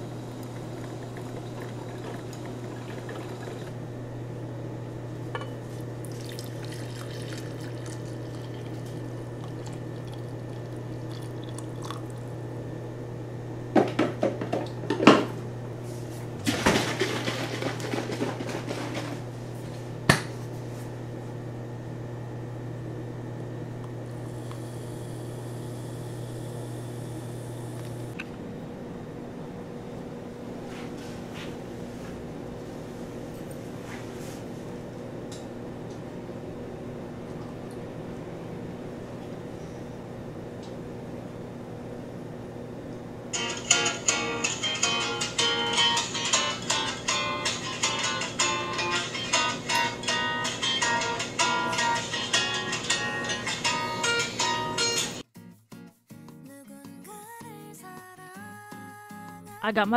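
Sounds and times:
steady low hum: 0.0s - 55.2s
liquid pouring into mug: 0.6s - 3.8s, 6.0s - 12.3s.

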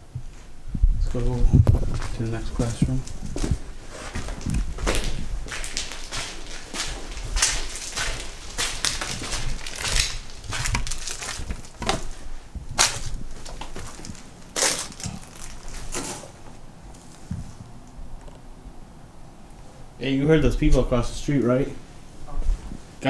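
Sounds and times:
footsteps crunching on debris: 1.1s - 17.6s.

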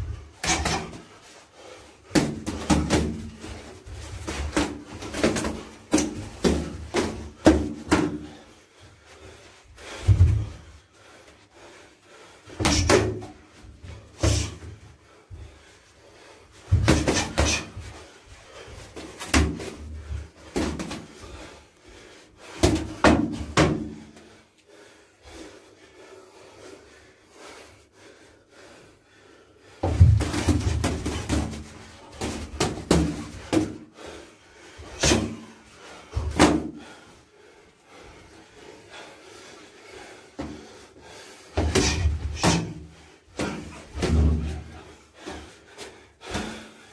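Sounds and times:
boxing gloves smacking: 0.4s - 1.1s, 2.1s - 8.4s, 12.6s - 13.4s, 16.7s - 18.0s, 19.0s - 21.2s, 29.8s - 33.8s, 35.0s - 35.5s, 41.6s - 44.8s.

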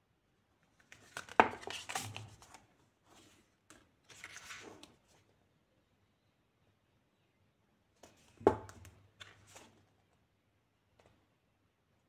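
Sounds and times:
book pages rustling: 0.7s - 5.3s, 9.2s - 10.1s.

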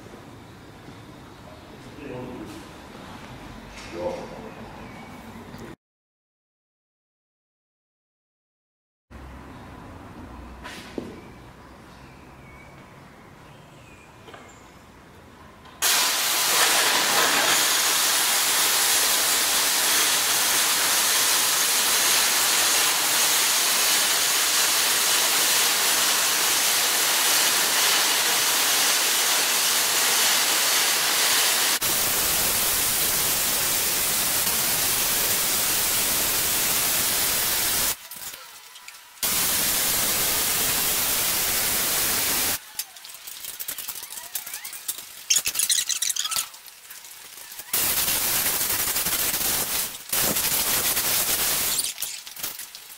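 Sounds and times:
welding arc hiss: 15.8s - 38.5s, 39.2s - 52.9s.

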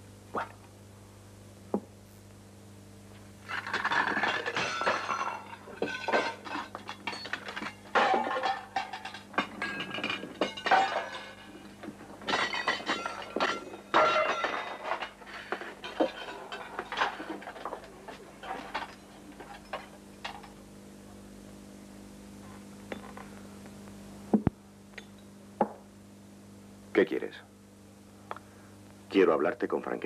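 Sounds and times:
steady low hum: 0.0s - 30.0s
tableware clinking: 3.5s - 20.6s.

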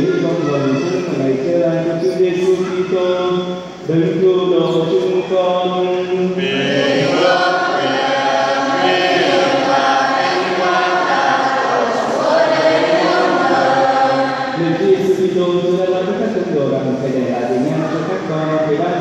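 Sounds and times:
choir singing a sacred chant: 6.4s - 15.3s.

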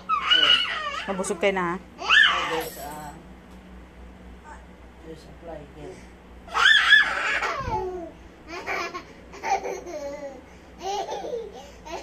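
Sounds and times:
child laughing and squealing: 6.5s - 12.0s.

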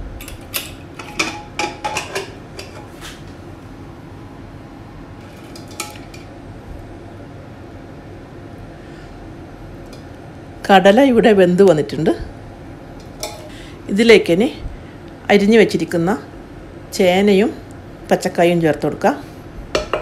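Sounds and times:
metal lid clanks and clicks: 0.2s - 2.9s, 5.2s - 6.3s, 13.0s - 13.5s, 19.8s - 20.0s.

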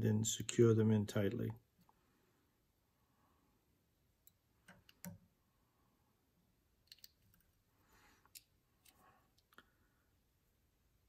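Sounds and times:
faint clicks of thread and bobbin: 4.2s - 5.3s.

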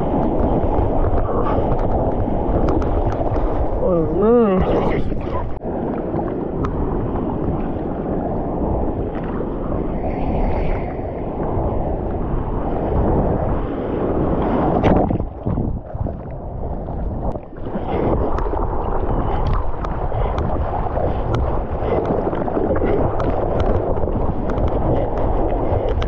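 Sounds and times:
water lapping against bodyboard: 0.0s - 26.0s
wind buffeting microphone: 0.0s - 26.0s
water splashes and drops: 14.4s - 26.0s.

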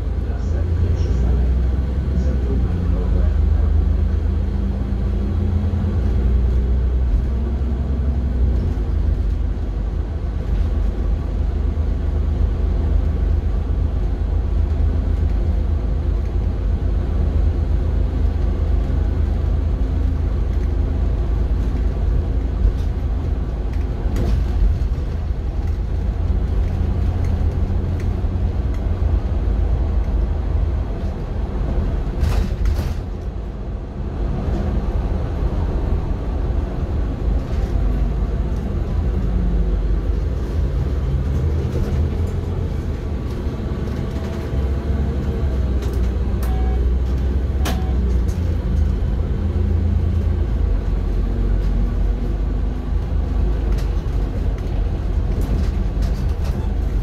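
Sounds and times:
bus engine and tyres rumbling: 0.0s - 57.0s.

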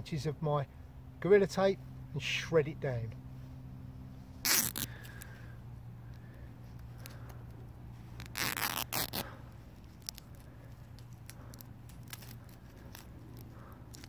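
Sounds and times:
tape crinkling: 4.4s - 5.4s, 6.1s - 14.0s
tape ripping: 4.4s - 5.4s, 8.1s - 14.0s.

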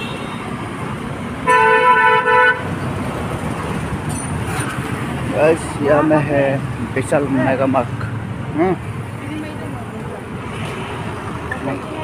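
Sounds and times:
street traffic noise: 0.0s - 12.0s
vehicle horn blast: 1.4s - 2.7s.

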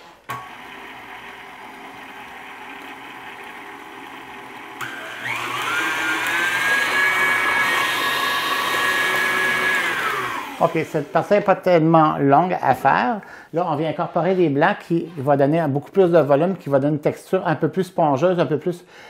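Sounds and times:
stand mixer motor whine: 0.3s - 11.3s.

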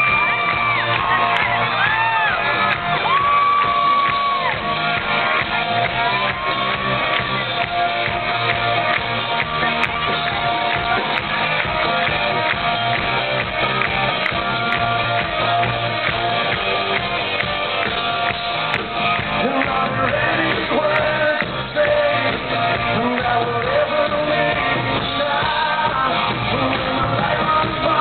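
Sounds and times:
crowd shouting: 0.0s - 12.0s
live rock band playing: 0.0s - 28.0s.

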